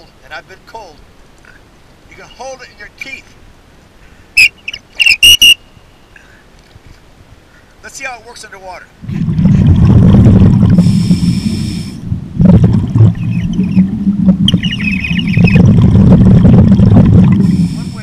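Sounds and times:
warbling whistle tone: 0:04.4 - 0:05.6, 0:13.1 - 0:15.8
high whistle tone underwater: 0:04.4 - 0:05.8, 0:13.0 - 0:17.6
exhaust bubbles rumbling: 0:09.0 - 0:18.0.

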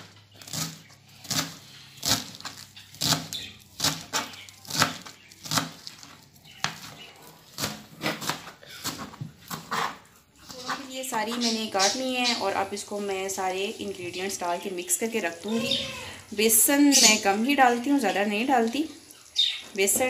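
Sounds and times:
knife chopping leaves on cutting board: 0:00.0 - 0:10.0.

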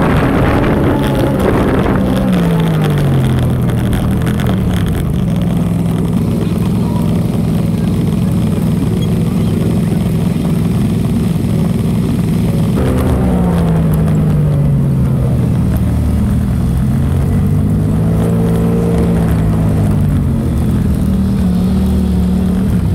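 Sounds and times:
quad engine slowing and idling: 0:00.0 - 0:22.9.

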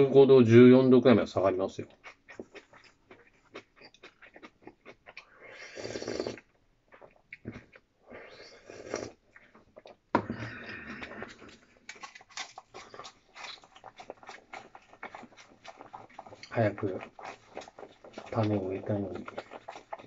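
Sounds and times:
chewing: 0:01.8 - 0:20.0
slurping soup: 0:05.1 - 0:20.0.

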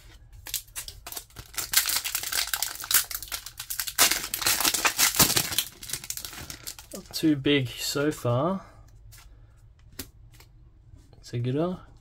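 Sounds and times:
foil pack tearing open: 0:00.4 - 0:07.0
foil wrapper crinkling: 0:00.4 - 0:07.2.

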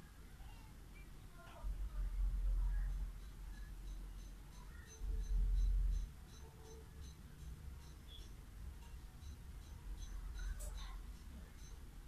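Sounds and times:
faint low rumble: 0:00.2 - 0:06.2
faint high-pitched chirps: 0:02.5 - 0:12.0.

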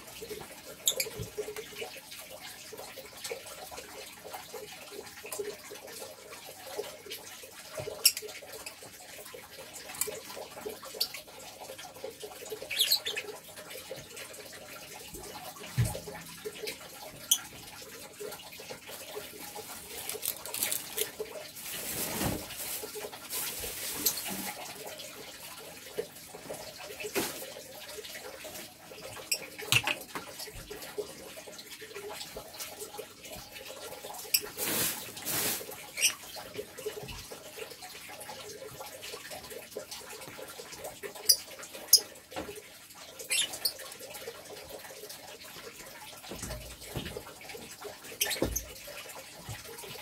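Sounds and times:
lovebird calls and clicks: 0:00.8 - 0:01.2, 0:12.7 - 0:13.4, 0:43.3 - 0:43.8, 0:48.2 - 0:48.6.

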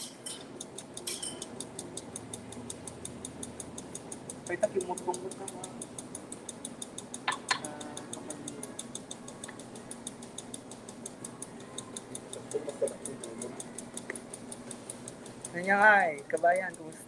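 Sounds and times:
ringing clinks: 0:00.0 - 0:01.6
low steady hum: 0:00.0 - 0:17.0
rapid high-pitched ticking: 0:00.0 - 0:17.0.

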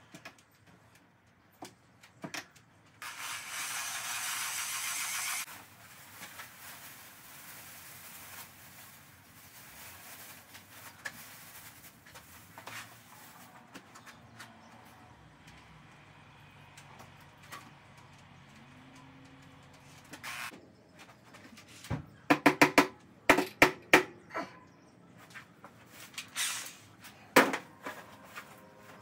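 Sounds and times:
plastic bag rustling: 0:05.5 - 0:13.6.

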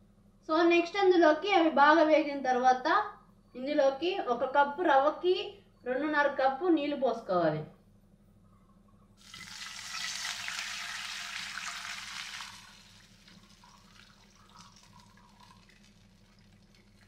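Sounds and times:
water sizzling in hot oil: 0:09.2 - 0:17.0.

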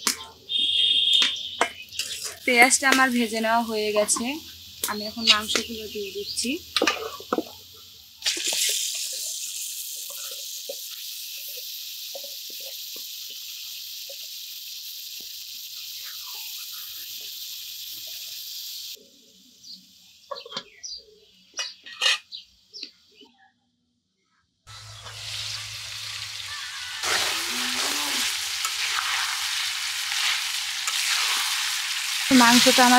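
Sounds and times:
meat sizzling in hot oil: 0:00.0 - 0:19.0, 0:24.7 - 0:32.9
metal spatula scraping a pan: 0:01.6 - 0:02.5, 0:21.6 - 0:22.3.

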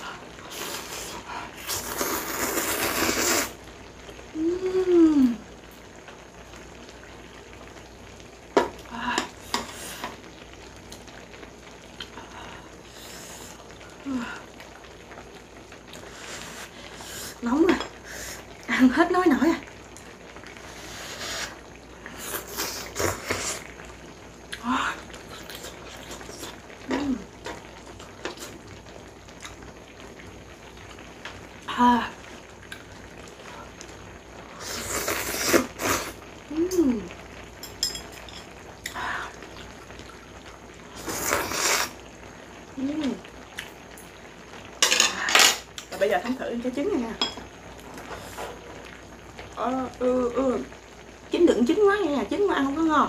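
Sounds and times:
faint steady hiss: 0:00.0 - 0:53.0
slurping noodles: 0:00.5 - 0:03.6, 0:20.7 - 0:23.7, 0:34.6 - 0:36.2, 0:40.9 - 0:42.0
mouth sounds while eating: 0:00.6 - 0:03.6, 0:34.6 - 0:36.8.

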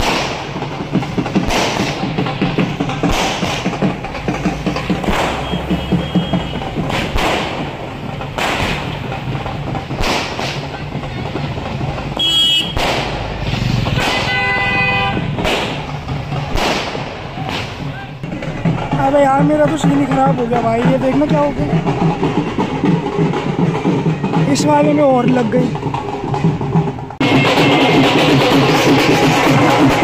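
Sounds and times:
dense steady din: 0:00.0 - 0:30.0
dhol drum strikes: 0:00.0 - 0:30.0
horn blaring: 0:05.2 - 0:06.9, 0:12.2 - 0:12.8, 0:13.9 - 0:15.4, 0:27.2 - 0:29.0.

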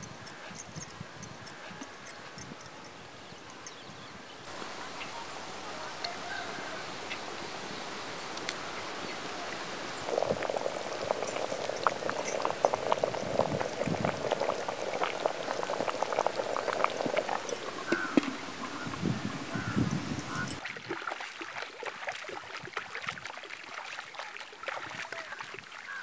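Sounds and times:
curry boiling with popping bubbles: 0:09.9 - 0:25.0.

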